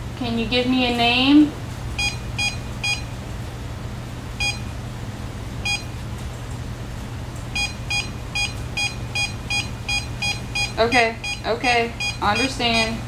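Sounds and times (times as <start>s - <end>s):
steady low hum: 0.0s - 13.0s
short electronic beeps: 2.0s - 3.1s, 4.4s - 4.6s, 5.7s - 5.9s, 7.6s - 13.0s.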